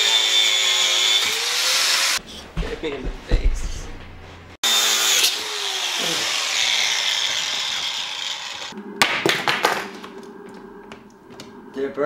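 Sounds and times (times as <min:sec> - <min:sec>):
angle grinder whine: 0:00.0 - 0:02.2, 0:04.6 - 0:09.0.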